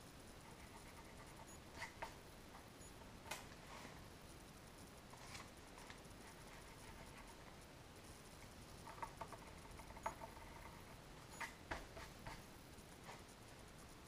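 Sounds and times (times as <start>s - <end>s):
pencil scratching on paper: 0.4s - 2.0s.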